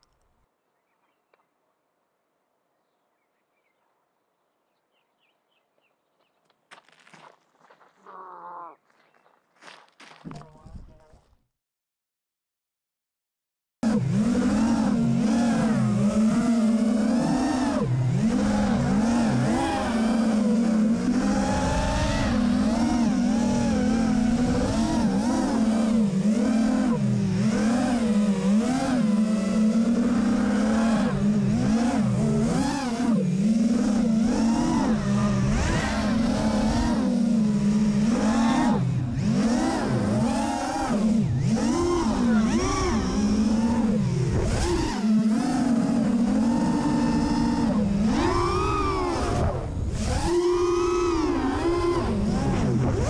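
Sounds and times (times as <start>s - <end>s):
quadcopter motor whine: 13.8s - 53.0s.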